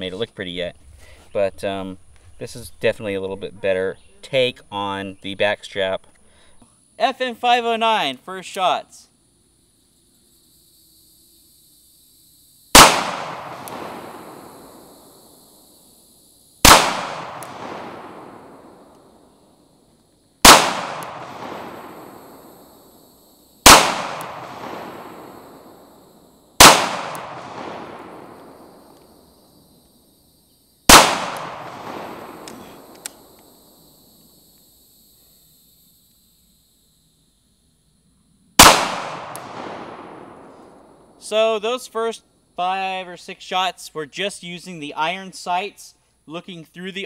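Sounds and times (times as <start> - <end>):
pistol shots with echo: 12.8 - 14.8, 16.6 - 19.0, 20.4 - 22.4, 23.6 - 25.7, 26.6 - 28.9, 30.9 - 33.0, 38.6 - 40.5.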